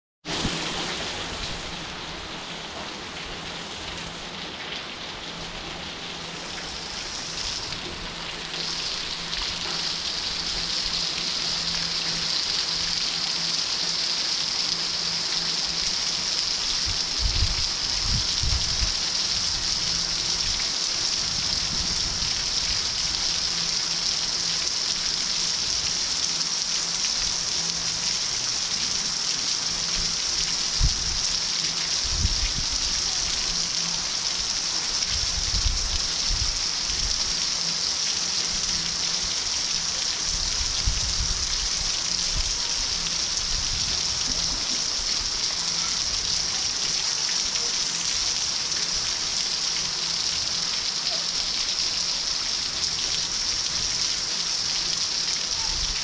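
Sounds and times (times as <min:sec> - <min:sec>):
heavy rain on roofs and paving: 0:00.2 - 0:56.0.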